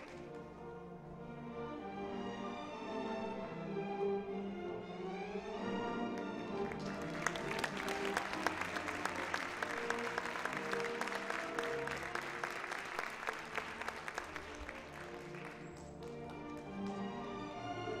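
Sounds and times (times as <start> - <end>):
audience applauding: 0.0 - 0.4, 6.1 - 17.2
orchestral ballet music: 0.0 - 18.0.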